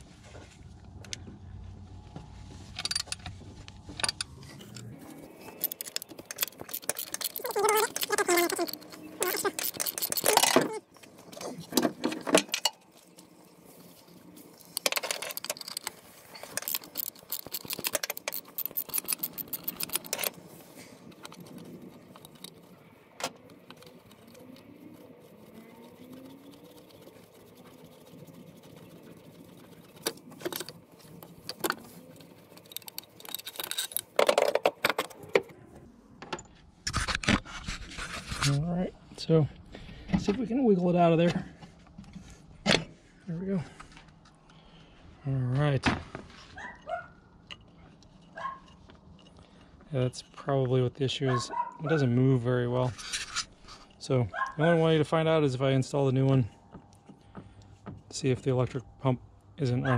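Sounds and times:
metal tools clinking: 2.7s - 13.2s, 14.6s - 20.5s, 30.0s - 35.2s
ratchet wrench clicking: 5.6s - 10.5s, 14.8s - 20.3s.

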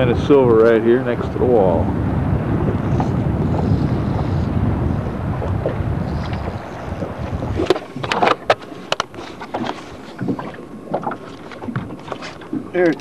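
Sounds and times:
low steady rumble: 0.0s - 8.5s
sharp knocks and clicks in boat: 5.4s - 13.0s.

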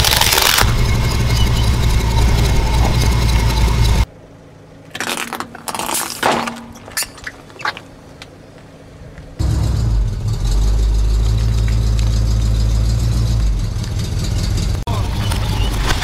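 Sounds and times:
sharp crackles and pops: 0.0s - 0.9s
truck engine running: 0.0s - 4.1s, 9.4s - 16.0s.

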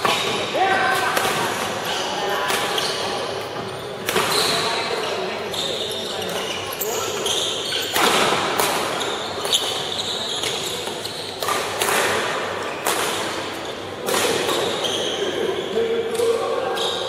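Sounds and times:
shoes squeaking on floor: 1.8s - 11.7s, 12.6s - 12.9s, 13.5s - 15.8s, 16.6s - 17.0s
racket hitting shuttlecock: 7.9s - 14.7s.

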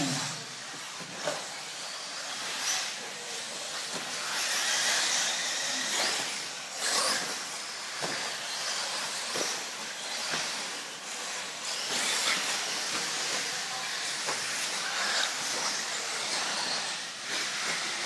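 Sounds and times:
electric rc cars whining: 0.0s - 18.0s.

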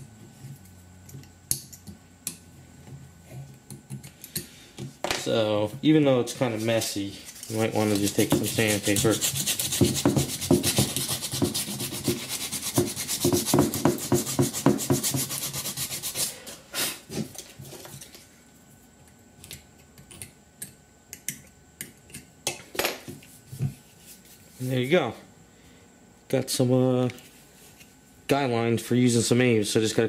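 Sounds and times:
sandpaper scratching: 7.4s - 16.4s.

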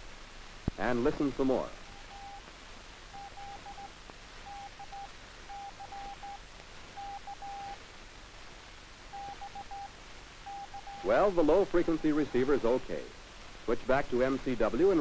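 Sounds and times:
faint background hiss: 0.0s - 15.0s
morse code tone: 1.9s - 2.4s, 3.2s - 3.9s, 4.5s - 6.4s, 7.0s - 7.8s, 9.1s - 9.9s, 10.5s - 11.2s.

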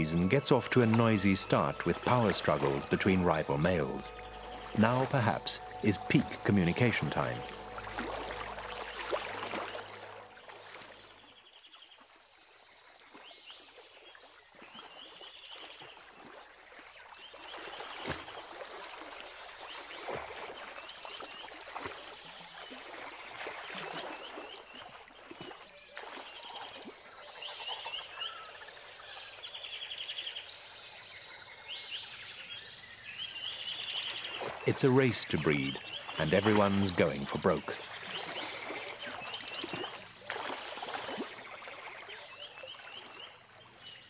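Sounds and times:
frogs chirping and trilling: 0.0s - 11.4s, 22.8s - 43.4s.

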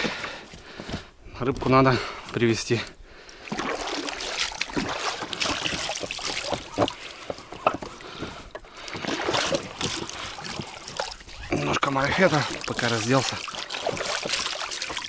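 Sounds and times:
water splashing: 3.4s - 15.0s
gear knocking against boat: 4.7s - 11.8s.

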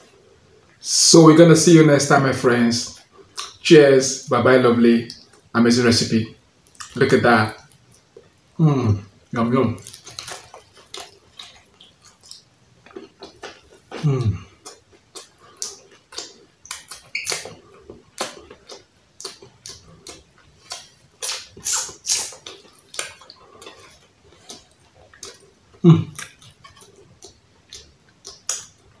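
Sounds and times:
lip smacks and chewing: 3.0s - 3.6s, 6.6s - 7.0s, 9.8s - 29.0s
person humming: 8.6s - 9.0s, 14.0s - 14.5s.

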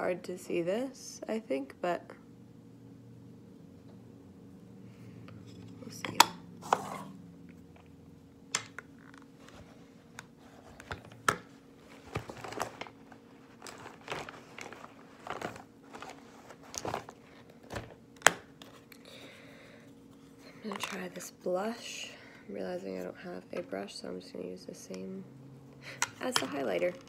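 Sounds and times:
plastic bag crinkling: 11.8s - 18.0s.

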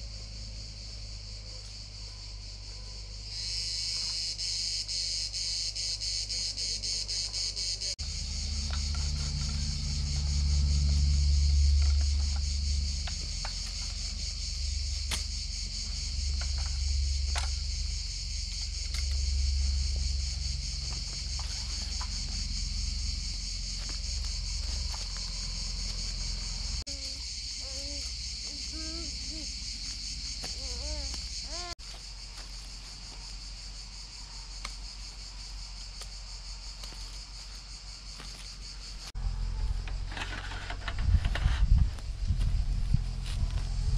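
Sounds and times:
insects chorus: 0.0s - 43.9s
wind on microphone: 40.8s - 43.9s.

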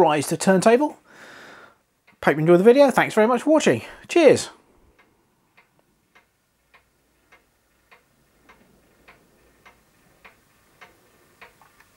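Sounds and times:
turntable motor ticking: 4.9s - 11.9s.

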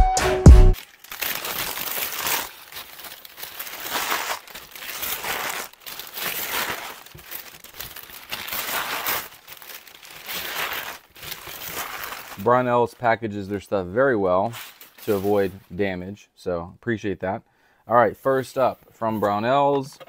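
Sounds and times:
packing paper crinkling: 0.8s - 13.7s, 14.3s - 15.8s.

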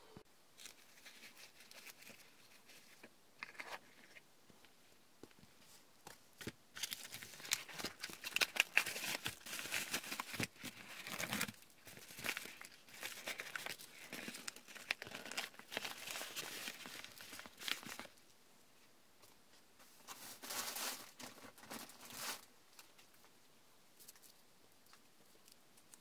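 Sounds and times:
paper envelope crinkling: 0.6s - 4.2s, 6.4s - 18.2s.

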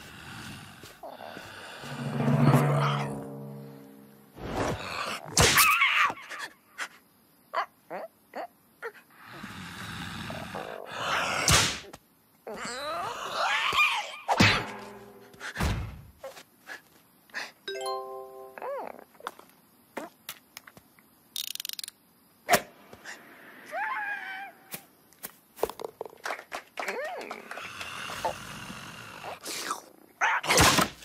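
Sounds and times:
bell-like chime: 17.7s - 18.8s.

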